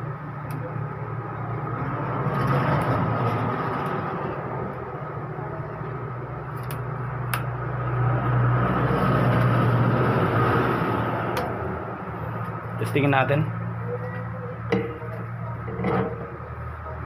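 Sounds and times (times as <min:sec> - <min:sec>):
steady low hum: 0:09.6 - 0:17.0.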